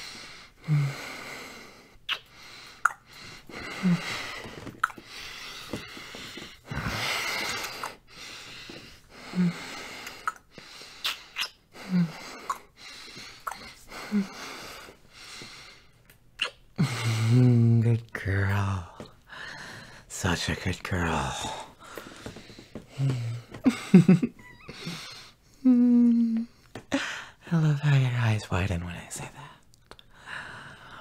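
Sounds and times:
breathing: 0:00.0 - 0:11.0, 0:11.8 - 0:16.0, 0:19.3 - 0:20.1, 0:21.4 - 0:23.6, 0:26.5 - 0:27.4, 0:30.1 - 0:31.0
wet lip smacks: 0:02.1 - 0:02.3, 0:11.0 - 0:11.6.

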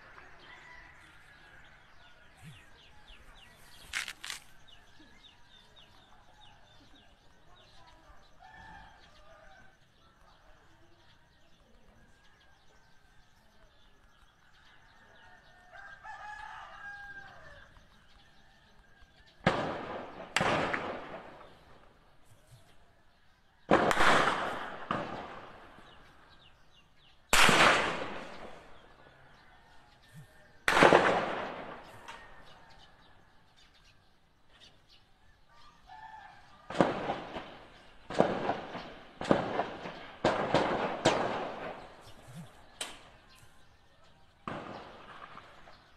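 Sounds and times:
rooster crowing: 0:00.3 - 0:02.0, 0:15.1 - 0:17.8
echoing gunshots: 0:19.3 - 0:22.3, 0:23.6 - 0:29.5, 0:30.1 - 0:33.0, 0:36.5 - 0:45.9.

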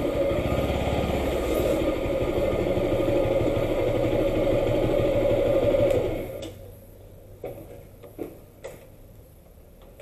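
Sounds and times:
motorcycle engine idling: 0:00.0 - 0:05.8.

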